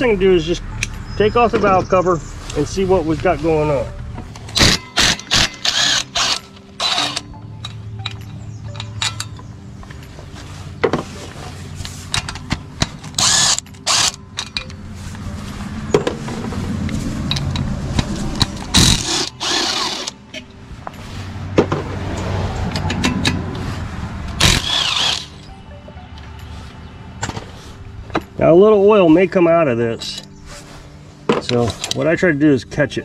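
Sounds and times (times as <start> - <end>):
cordless drill motor running: 13.2 - 14.1, 18.8 - 20.1, 24.4 - 25.3
metal clicks and knocks: 22.6 - 23.4.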